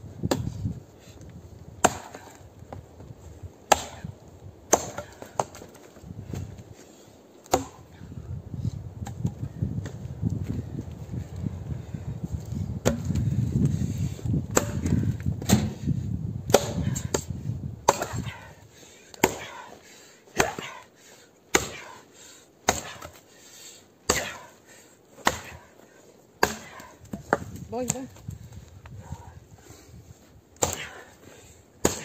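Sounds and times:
axe chopping into log: 0.2s - 0.5s, 1.8s - 2.4s, 3.7s - 4.1s, 4.7s - 5.8s, 7.4s - 7.9s, 12.8s - 13.2s, 14.5s - 15.8s, 16.5s - 18.4s, 19.2s - 19.7s, 20.4s - 20.8s, 21.5s - 22.0s, 22.6s - 23.2s, 24.1s - 24.5s, 25.2s - 25.7s, 26.4s - 28.0s, 30.6s - 31.1s, 31.8s - 32.0s.

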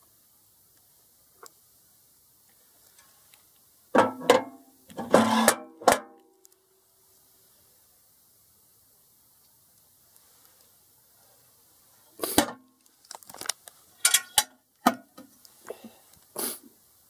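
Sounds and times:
metal disc clanking and ringing: 4.0s - 6.1s.

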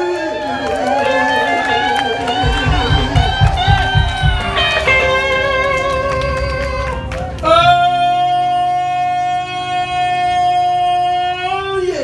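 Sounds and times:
live blues band playing: 1.6s - 9.4s
electric guitar bending notes: 1.6s - 12.0s.

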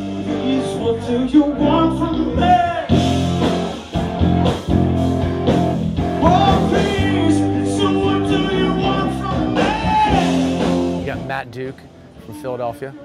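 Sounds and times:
man singing: 0.0s - 3.0s, 6.2s - 10.8s
electric bass: 0.0s - 12.3s
electric guitar: 0.0s - 13.0s.

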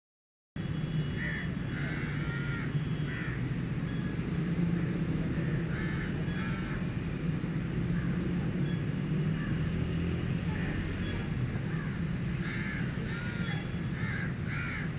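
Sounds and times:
crows cawing: 1.2s - 3.5s, 4.8s - 7.1s, 7.9s - 8.2s, 9.3s - 9.8s, 11.6s - 14.9s.

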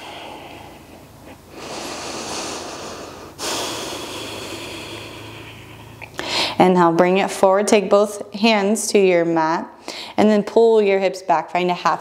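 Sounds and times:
woman breathing deeply: 0.0s - 6.6s.

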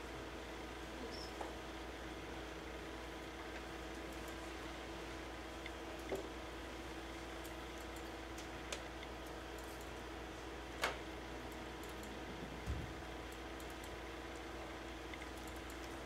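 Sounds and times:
room hum: 0.0s - 16.0s
keyboard and mouse clicks: 15.1s - 16.0s.

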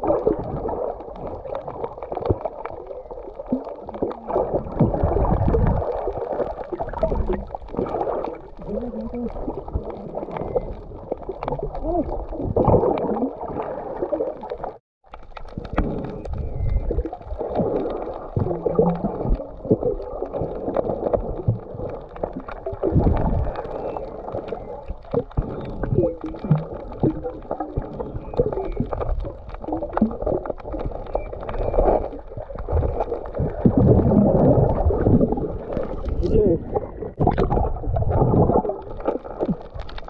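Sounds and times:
water gurgling underwater: 0.0s - 40.0s.

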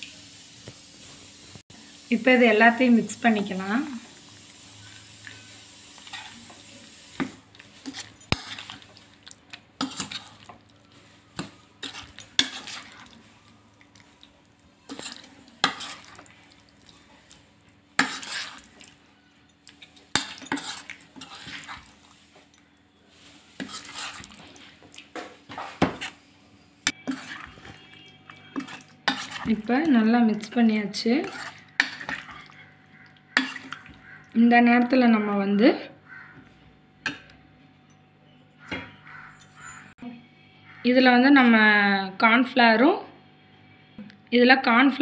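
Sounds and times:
spoon scraping and clinking bowl: 9.8s - 10.5s, 11.8s - 13.2s, 14.8s - 16.3s, 18.0s - 18.7s, 19.7s - 22.6s, 23.6s - 24.6s, 26.9s - 29.7s, 31.2s - 32.8s.

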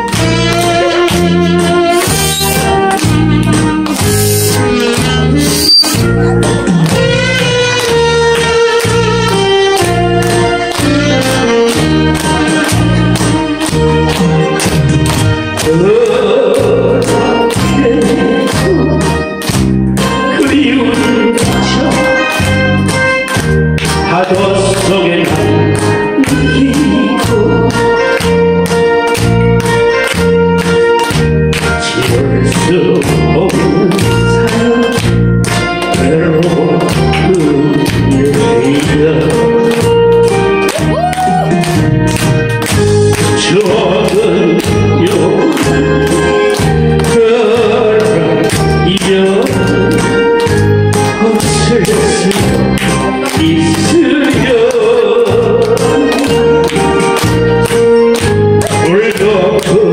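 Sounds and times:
backing track with steady beat: 0.0s - 59.9s
man singing into a microphone: 15.6s - 19.3s, 20.2s - 22.5s, 24.0s - 28.0s, 31.7s - 35.2s, 35.8s - 39.9s, 43.3s - 50.4s, 51.1s - 57.0s, 58.7s - 59.9s.

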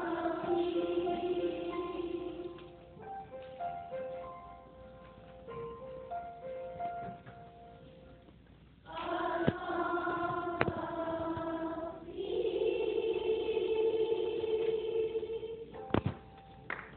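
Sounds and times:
children's choir singing: 0.0s - 3.0s, 8.8s - 16.0s
soft steady tones: 0.0s - 16.7s.

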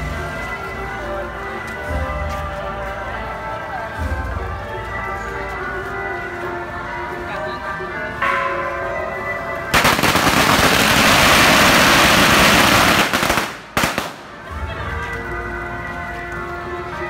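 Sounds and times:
music with held tones: 0.0s - 17.0s
firecrackers banging: 9.7s - 14.8s.

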